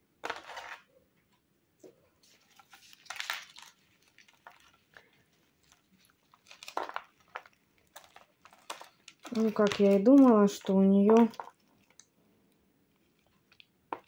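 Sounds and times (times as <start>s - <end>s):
bark rustling inside pot: 2.2s - 12.0s
plastic pot crackling: 2.3s - 12.2s, 12.9s - 14.0s.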